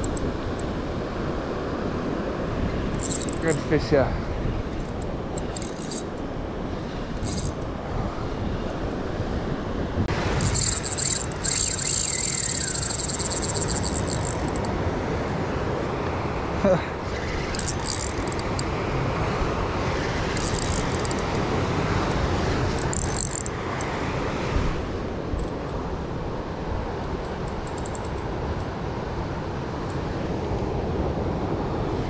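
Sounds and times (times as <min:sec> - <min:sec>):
fishing reel clicking: 0:00.0 - 0:00.3, 0:03.0 - 0:03.6, 0:04.8 - 0:06.2, 0:07.2 - 0:07.7, 0:10.4 - 0:14.7, 0:17.5 - 0:18.7, 0:20.4 - 0:21.4, 0:22.8 - 0:23.9, 0:27.0 - 0:28.2
wind: 0:00.0 - 0:32.0.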